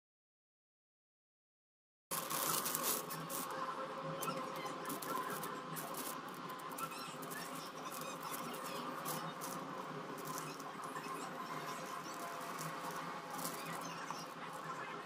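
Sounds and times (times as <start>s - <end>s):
steady faint hum: 2.1s - 15.0s.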